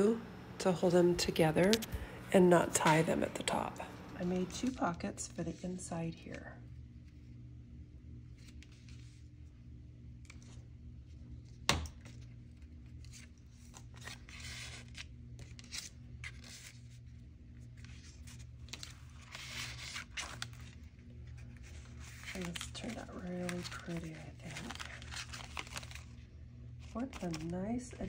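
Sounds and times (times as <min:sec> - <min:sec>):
faint steady hum: 0:00.0 - 0:28.0
paper rustling and sliding: 0:17.8 - 0:26.1.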